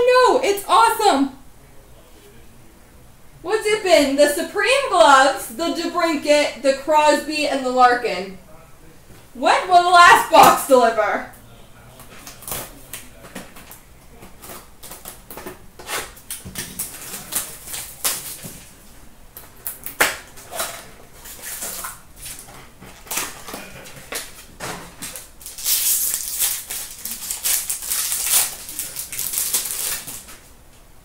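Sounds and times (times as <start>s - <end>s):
wrapper crinkling: 16.3s - 18.7s, 20.5s - 30.5s.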